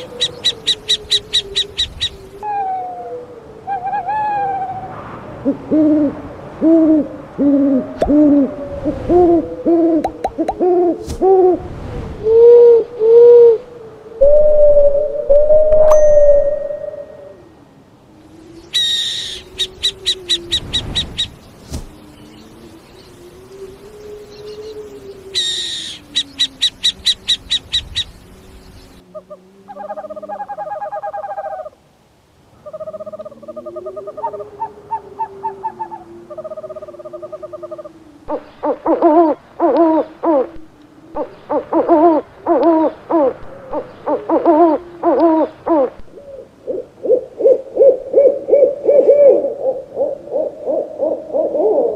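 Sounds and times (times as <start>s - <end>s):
owl high chirping notes: 0.0s - 2.7s, 14.2s - 17.4s, 18.7s - 21.4s, 24.3s - 28.1s
owl trilling calls: 0.0s - 2.9s, 18.7s - 21.3s, 23.6s - 28.1s
owl hoots: 0.0s - 11.6s, 23.4s - 28.0s, 32.6s - 51.9s
owl fast pulsing call: 24.4s - 28.1s.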